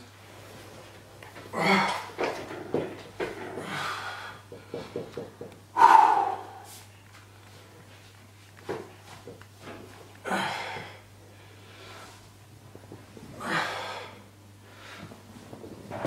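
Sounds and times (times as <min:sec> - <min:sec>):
man breathing hard: 0:03.6 - 0:06.8, 0:10.2 - 0:12.2, 0:13.4 - 0:15.2.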